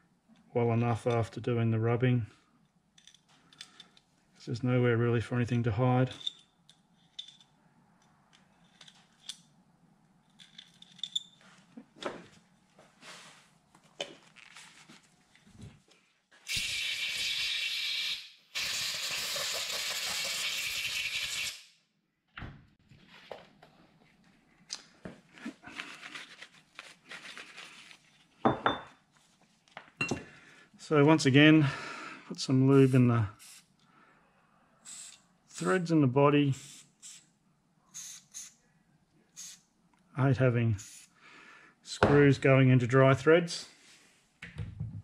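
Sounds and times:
small metal parts clicking: 0:06.1 - 0:09.5, 0:10.2 - 0:11.4.

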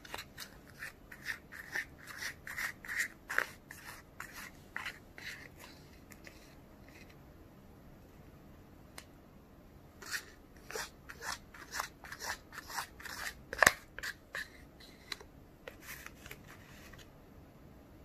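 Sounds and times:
plastic spoon scraping plastic tray: 0:00.0 - 0:07.2, 0:10.0 - 0:17.0.

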